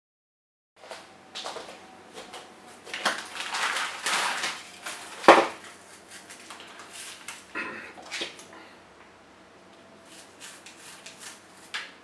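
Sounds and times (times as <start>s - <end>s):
plastic packets crinkling: 2.2s - 8.4s.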